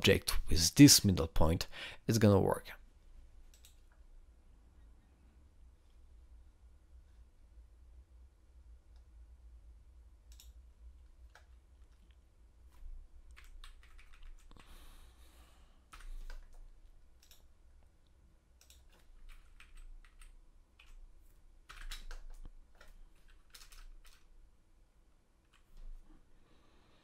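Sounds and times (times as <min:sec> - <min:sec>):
steady low hum: 0:00.0 - 0:27.0
typing on computer keyboard: 0:12.7 - 0:14.7, 0:15.9 - 0:17.5, 0:18.6 - 0:21.0, 0:21.7 - 0:24.3.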